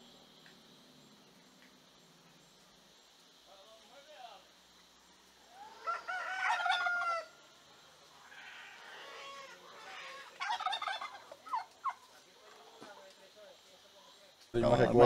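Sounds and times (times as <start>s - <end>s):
rooster crowing: 5.5s - 7.5s
short fowl calls: 5.5s - 7.5s, 8.1s - 13.0s.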